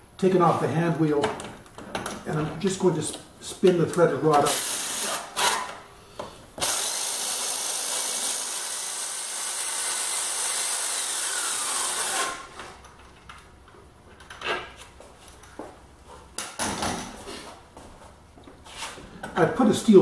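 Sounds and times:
power drill running: 4.5s - 5.5s, 6.6s - 12.6s.

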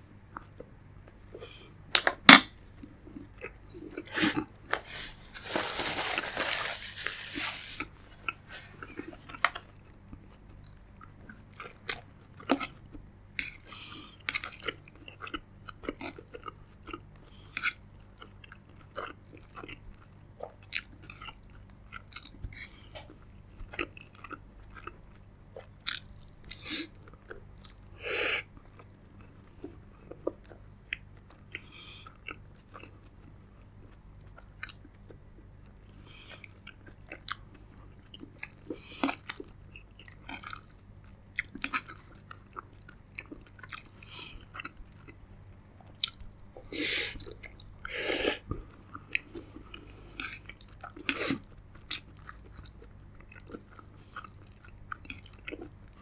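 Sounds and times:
person chewing and crunching food: 2.7s - 56.0s.

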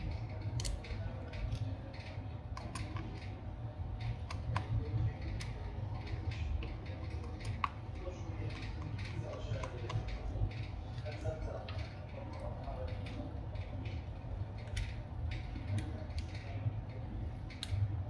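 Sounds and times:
small metal clicks and taps: 0.2s - 3.3s.

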